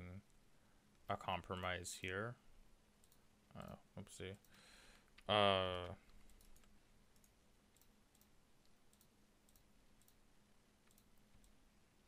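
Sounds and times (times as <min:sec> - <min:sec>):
faint steady hum: 0:00.0 - 0:12.0
computer mouse clicks: 0:03.0 - 0:03.8, 0:04.4 - 0:10.2, 0:10.8 - 0:11.6.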